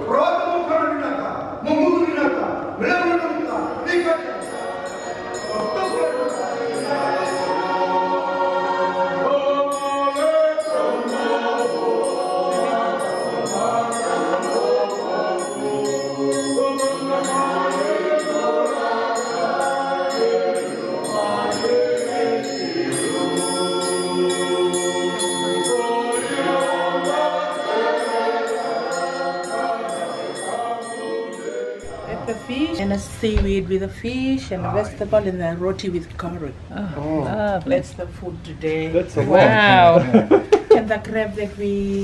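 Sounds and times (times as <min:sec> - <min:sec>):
congregation singing a hymn: 0:02.7 - 0:33.7.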